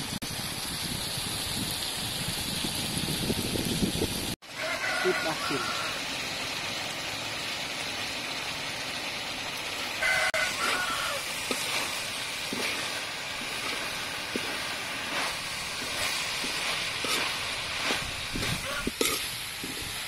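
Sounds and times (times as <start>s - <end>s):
food sizzling in a wok: 0.0s - 20.0s
rooster crowing: 4.5s - 6.1s, 10.0s - 11.3s, 17.8s - 18.9s
spatula scraping a pan: 10.0s - 20.0s.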